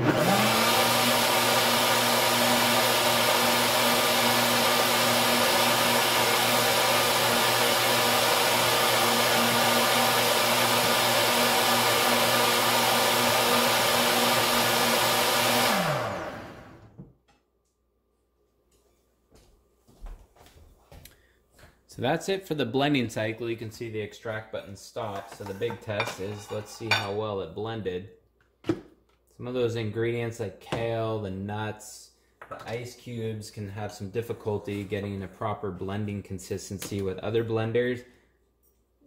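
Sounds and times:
blender motor whining: 0:00.0 - 0:17.0.

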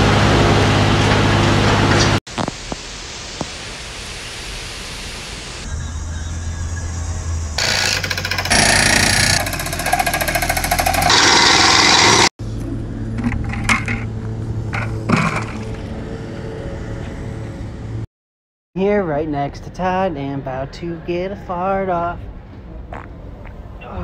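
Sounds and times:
heavy rain and wind: 0:00.0 - 0:05.6
hydraulic hammer rattling: 0:07.6 - 0:12.3.

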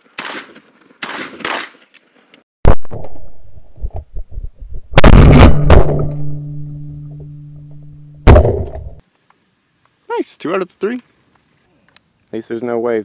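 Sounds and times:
shotgun shots: 0:00.2 - 0:01.8, 0:05.0 - 0:06.4, 0:08.2 - 0:09.0
low steady hum: 0:03.2 - 0:09.0.

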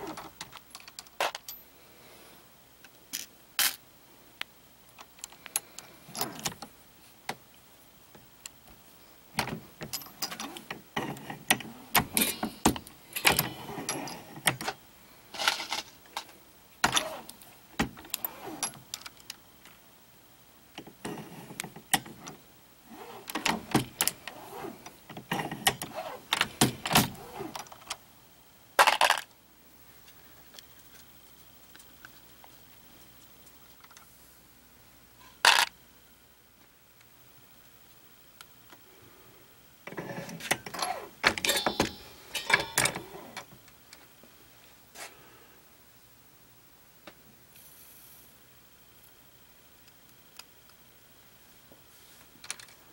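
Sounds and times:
metallic clicks and rattles of brass cases: 0:00.1 - 0:01.6, 0:09.4 - 0:14.8, 0:40.4 - 0:43.5.

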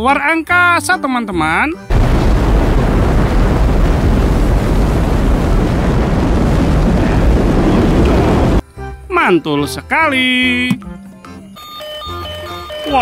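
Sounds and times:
rocket engines roaring: 0:02.2 - 0:08.6.

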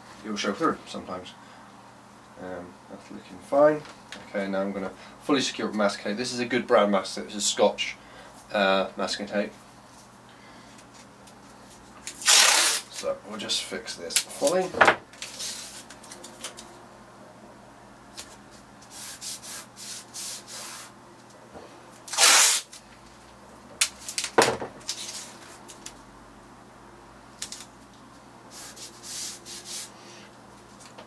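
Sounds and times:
tape pulled off roll: 0:12.1 - 0:12.9
fingers rubbing tape onto paper: 0:22.1 - 0:22.7, 0:28.5 - 0:29.9.

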